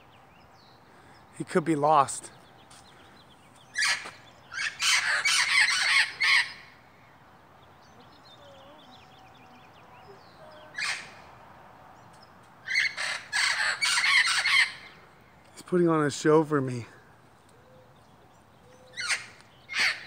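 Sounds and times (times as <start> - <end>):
parrots squawking: 3.7 - 6.8, 10.6 - 11.2, 12.6 - 15.0, 18.9 - 20.0.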